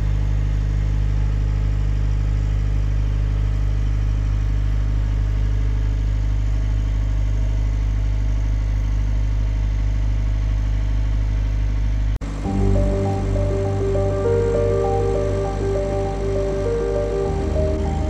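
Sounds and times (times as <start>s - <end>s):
boat engine droning: 12.3s - 18.0s.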